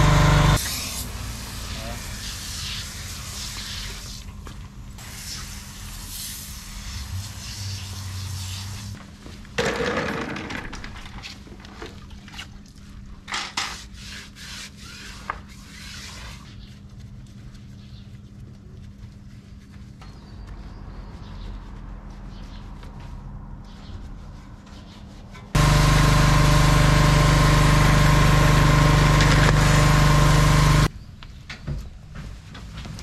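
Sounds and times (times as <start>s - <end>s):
scrubbing on a tire: 1.5s - 9.0s, 13.7s - 30.9s
foam sprayer hissing: 25.6s - 30.9s.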